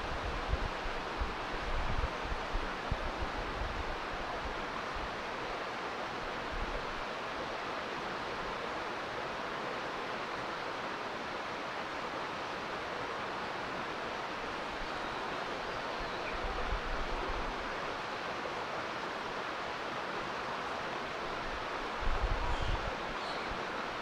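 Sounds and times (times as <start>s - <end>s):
wind buffeting microphone: 0.0s - 4.0s
rushing outdoor ambience: 0.0s - 24.0s.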